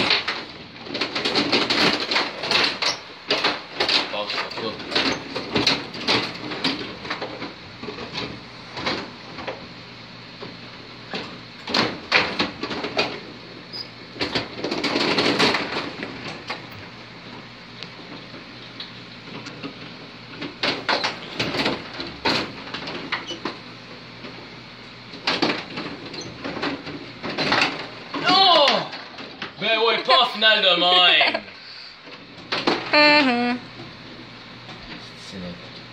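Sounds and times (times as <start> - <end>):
table game rattle: 0.0 - 9.6, 14.2 - 16.7.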